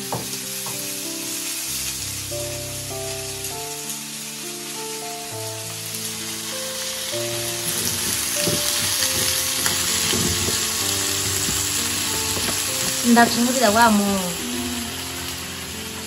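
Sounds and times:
background music with held notes: 0.0s - 16.0s
kernels sizzling in a pan: 0.0s - 16.0s
spatula scraping a pan: 7.4s - 13.1s.

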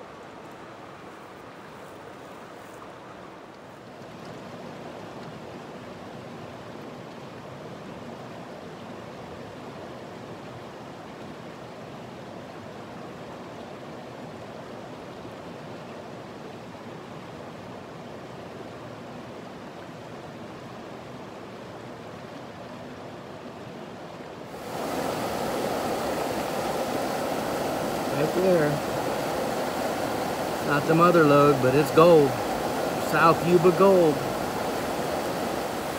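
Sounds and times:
river water rushing: 0.0s - 35.9s.

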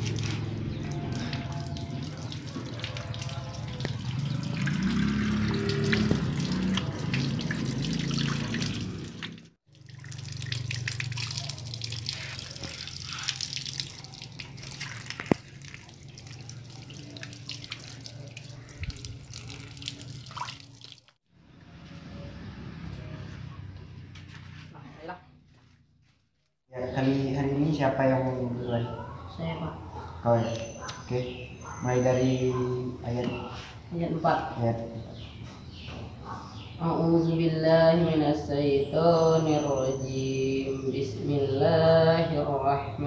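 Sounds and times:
water running from tap and splashing: 0.0s - 21.2s.

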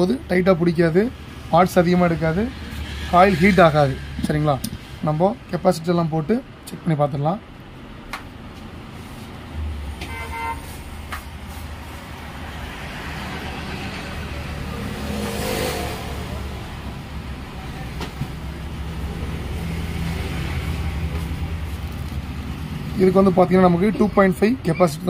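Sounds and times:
vehicle passing: 0.0s - 5.4s, 8.8s - 25.0s
horn toot: 10.0s - 10.8s.

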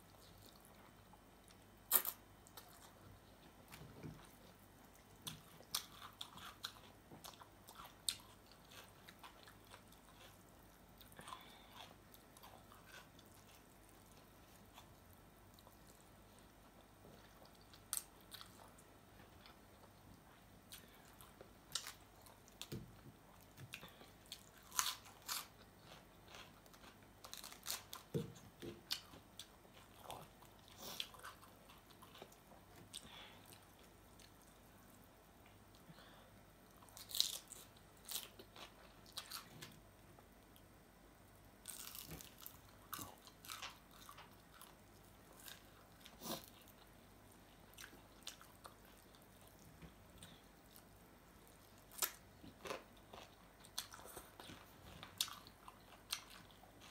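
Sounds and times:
person chewing and biting: 23.7s - 33.0s, 41.7s - 46.8s, 51.9s - 56.9s
food crunching: 24.3s - 32.4s.

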